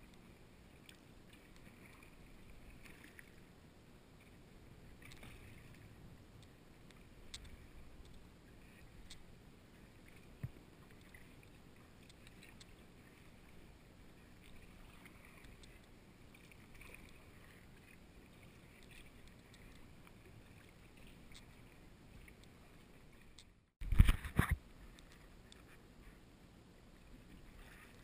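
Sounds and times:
small ticks: 0:00.0 - 0:03.3, 0:05.0 - 0:09.3, 0:10.0 - 0:13.6, 0:14.3 - 0:17.5, 0:18.4 - 0:22.6
soft water splashes: 0:00.0 - 0:28.0.

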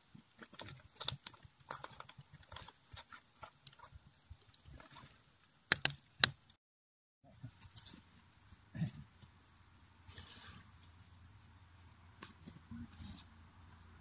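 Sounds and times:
wood fire crackling and popping: 0:00.0 - 0:06.6.

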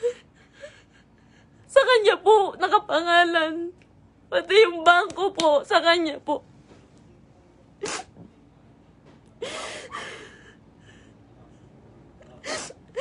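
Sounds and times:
woman crying: 0:09.4 - 0:10.5.

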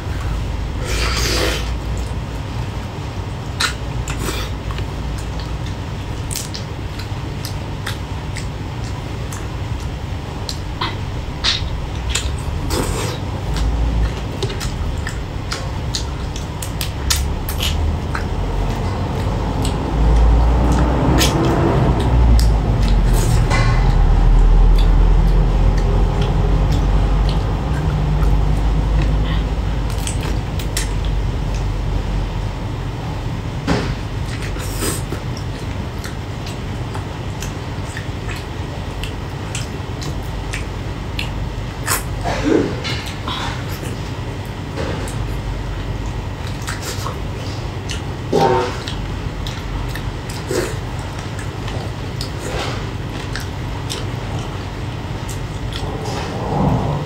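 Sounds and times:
steady low rumble: 0:00.0 - 0:57.0
sucking and chewing prawn shells: 0:00.2 - 0:31.8.

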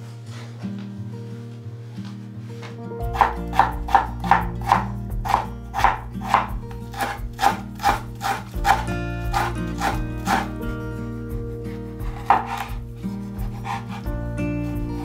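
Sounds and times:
knife chopping on cutting board: 0:03.1 - 0:10.6, 0:12.0 - 0:12.8, 0:13.4 - 0:14.1.

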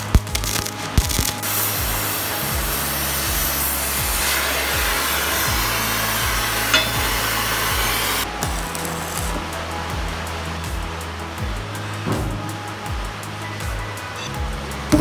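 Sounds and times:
cutting torch hissing: 0:00.0 - 0:10.2
background music with low beat: 0:00.0 - 0:15.0.

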